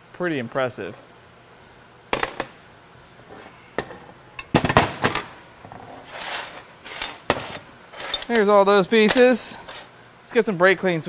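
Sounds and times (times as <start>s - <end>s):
scraping rustle: 5.7s - 8.4s.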